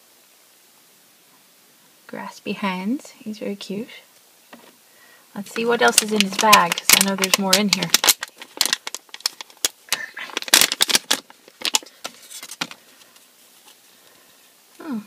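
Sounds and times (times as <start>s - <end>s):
foil packet crinkling: 5.4s - 14.1s
small plastic pieces rattling: 5.5s - 12.8s.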